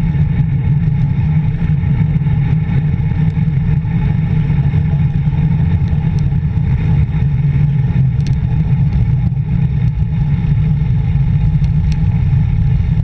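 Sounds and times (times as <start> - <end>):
wind rumbling on microphone: 0.0 - 13.0
faint ticks: 8.1 - 9.0, 11.5 - 12.1.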